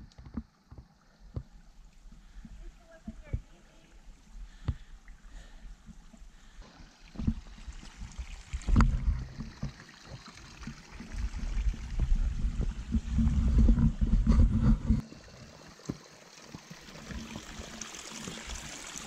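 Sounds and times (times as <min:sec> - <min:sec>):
irregular low rumble: 0:10.8 - 0:15.0.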